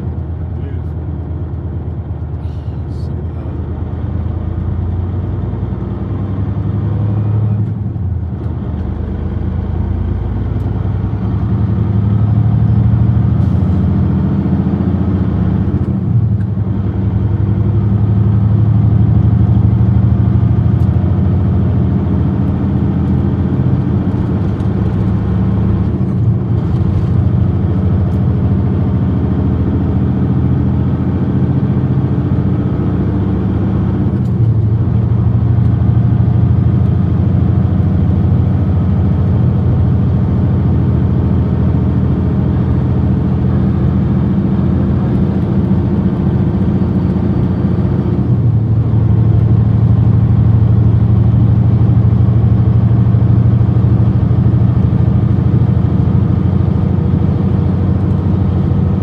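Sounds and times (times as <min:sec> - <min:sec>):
diesel truck engine: 0:00.0 - 0:59.0
road noise: 0:00.0 - 0:59.0.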